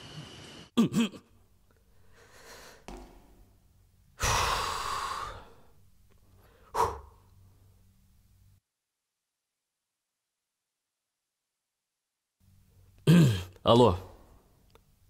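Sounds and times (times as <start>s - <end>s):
man breathing heavily: 1.9s - 2.9s, 4.2s - 7.3s
sharp exhale: 4.2s - 5.7s, 6.4s - 7.3s.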